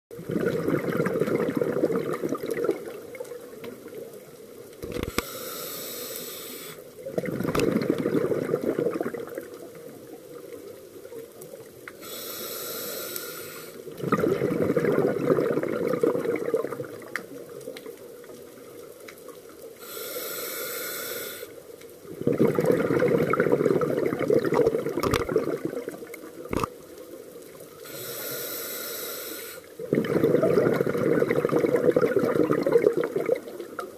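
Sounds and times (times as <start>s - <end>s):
exhaust bubbles rushing: 0.2s - 3.0s, 7.1s - 9.4s, 14.0s - 17.0s, 22.1s - 26.7s, 29.9s - 33.5s
regulator hissing inhale: 5.0s - 6.9s, 12.0s - 13.9s, 19.8s - 21.6s, 27.8s - 29.8s.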